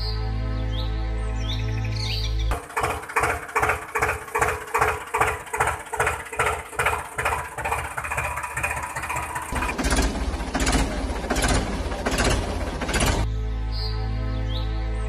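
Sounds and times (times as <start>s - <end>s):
music: 0.0s - 2.5s, 13.3s - 15.0s
tractor engine chugging: 2.5s - 13.3s.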